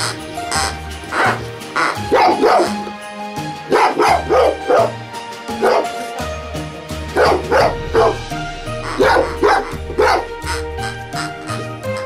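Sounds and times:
background music: 0.0s - 12.0s
dog barking and yipping: 1.1s - 3.0s, 3.6s - 6.3s, 7.1s - 10.7s.

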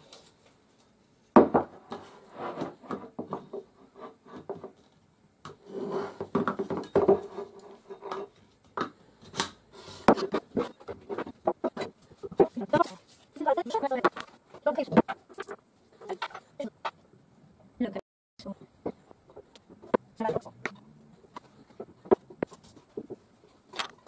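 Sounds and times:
parts clattering and scraping: 1.4s - 17.0s, 18.7s - 24.0s.

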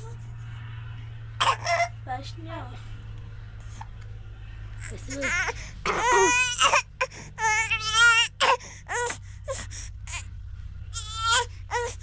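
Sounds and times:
newborn baby crying: 4.9s - 10.3s.

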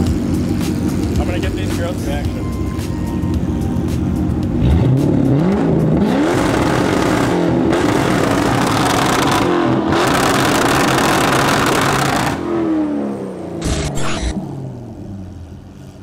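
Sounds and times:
sports car engine revving: 3.4s - 16.0s.

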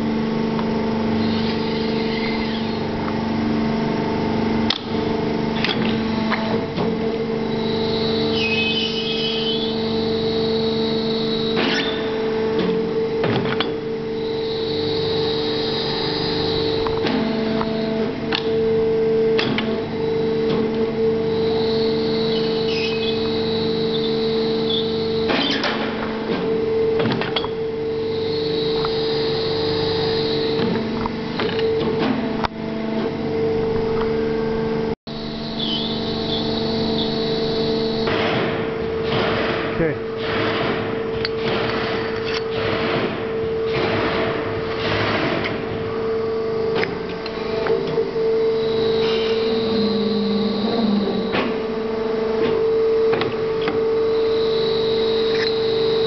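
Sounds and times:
high machine whine: 0.0s - 56.0s
machine humming: 0.0s - 56.0s.

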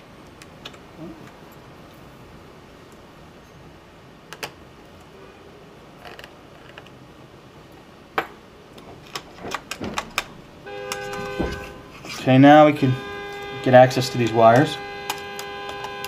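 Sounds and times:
plastic parts clicking: 8.8s - 11.2s.

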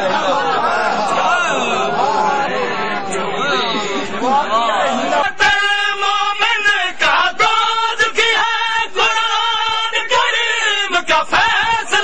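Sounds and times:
men singing a lament: 4.3s - 12.0s.

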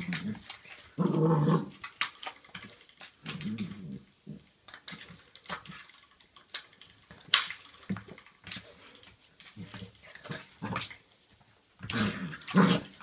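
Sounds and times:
puppy growling: 0.0s - 1.9s, 3.2s - 4.5s, 11.8s - 13.0s.

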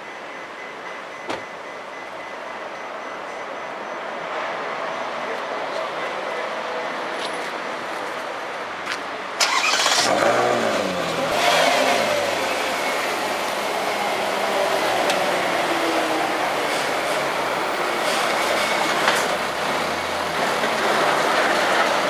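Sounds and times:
car engine starting and revving: 9.4s - 13.9s.

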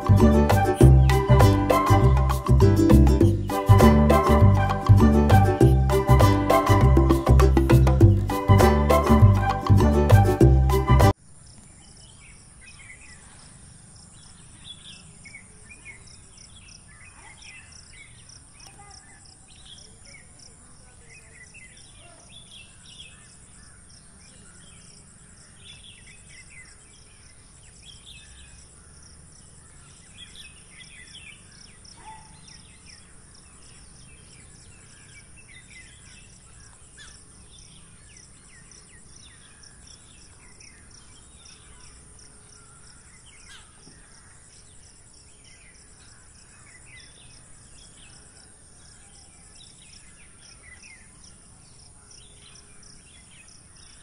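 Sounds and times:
birds chirping: 0.0s - 54.0s
insects trilling: 11.2s - 54.0s.

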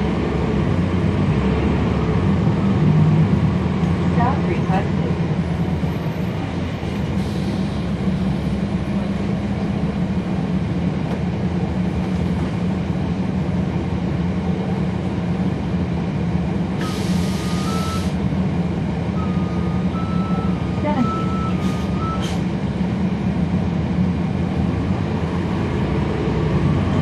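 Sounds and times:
bus diesel engine running: 0.0s - 27.0s
air hiss: 16.8s - 18.2s.

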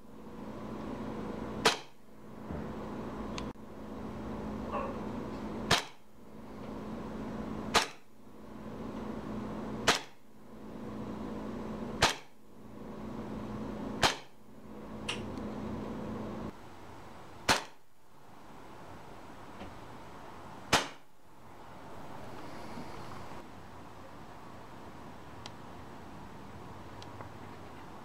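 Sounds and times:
airsoft pistol shots: 1.6s - 2.0s, 5.7s - 6.0s, 7.7s - 8.1s, 9.8s - 10.2s, 12.0s - 12.4s, 14.0s - 14.4s, 17.4s - 17.8s, 20.7s - 21.1s.

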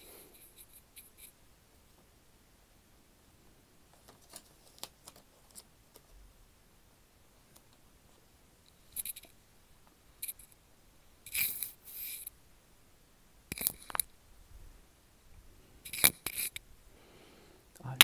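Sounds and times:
book pages rustling: 3.9s - 6.1s.

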